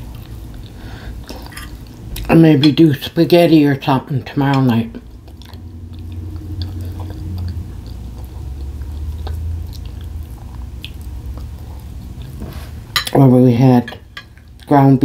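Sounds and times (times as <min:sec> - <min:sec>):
person chewing food: 0:00.0 - 0:02.3, 0:04.9 - 0:13.0.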